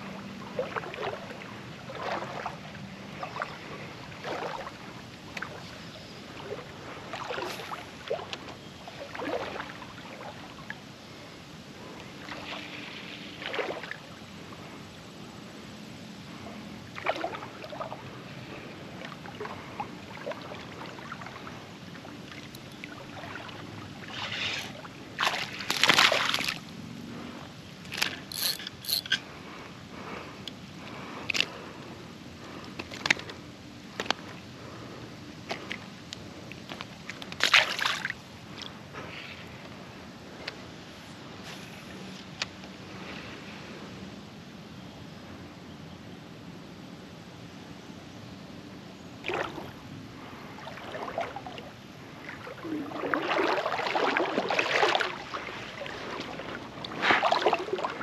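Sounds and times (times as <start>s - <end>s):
river water splashing: 0.0s - 10.8s, 12.0s - 14.7s, 16.3s - 29.6s, 33.9s - 39.4s, 49.2s - 58.0s.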